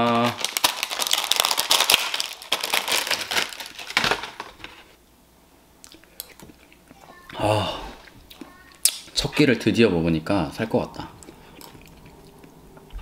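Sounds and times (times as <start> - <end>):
plastic packet crinkling: 0.0 - 5.0.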